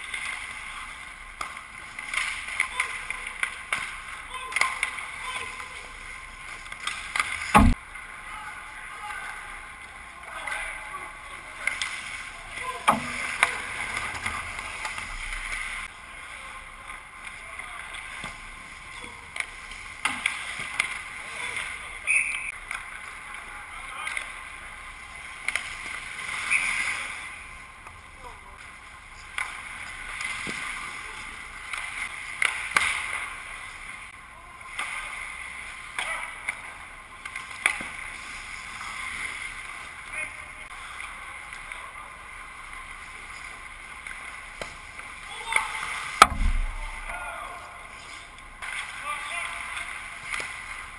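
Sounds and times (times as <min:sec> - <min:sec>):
hockey sticks and puck clacking: 0:00.0 - 0:05.7, 0:06.5 - 0:07.8, 0:11.6 - 0:15.9, 0:19.3 - 0:23.2, 0:28.6 - 0:31.0, 0:31.7 - 0:33.4, 0:35.9 - 0:39.3, 0:48.6 - 0:50.9.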